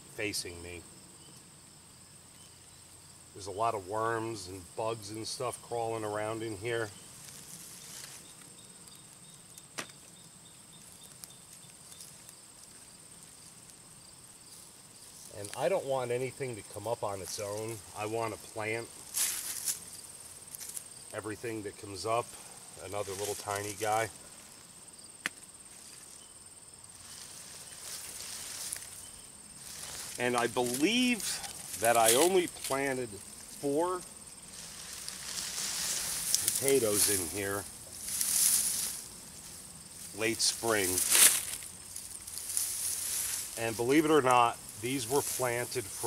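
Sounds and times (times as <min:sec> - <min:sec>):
high insect trill: 0:00.0 - 0:46.0
rustling of soil and vines: 0:02.6 - 0:46.0
hands working through soil: 0:22.8 - 0:24.0, 0:29.6 - 0:33.8, 0:34.5 - 0:39.1.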